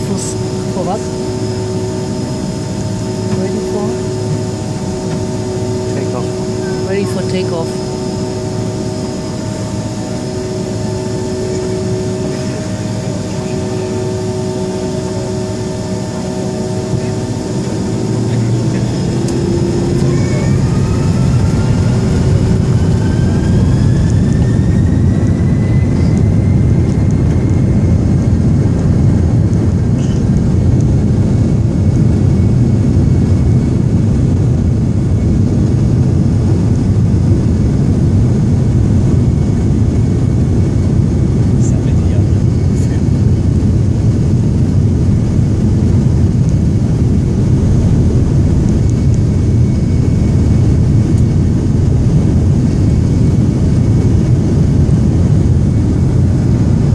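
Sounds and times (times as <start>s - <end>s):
jet engines spooling up: 0.0s - 56.8s.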